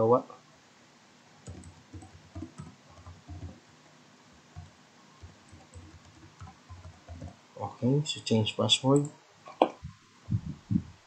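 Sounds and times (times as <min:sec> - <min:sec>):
keyboard keystroke clicks: 0:01.4 - 0:03.6.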